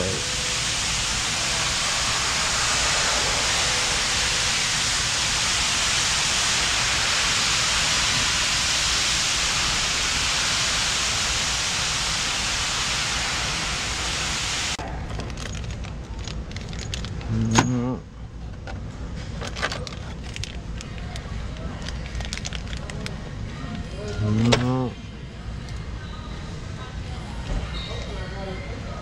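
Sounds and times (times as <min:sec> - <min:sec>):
loud steady air hiss: 0:00.0 - 0:14.8
plastic bags crinkling: 0:14.9 - 0:17.2, 0:21.7 - 0:23.2.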